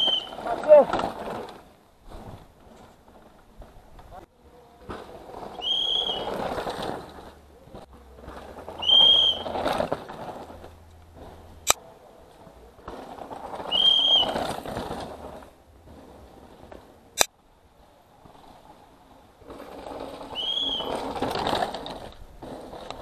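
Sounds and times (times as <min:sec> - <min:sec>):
disc brakes squealing: 0:00.0 - 0:00.6, 0:05.5 - 0:06.5, 0:08.8 - 0:09.7, 0:13.7 - 0:14.6, 0:20.3 - 0:21.2
bike tyres skidding on dirt: 0:00.0 - 0:23.0.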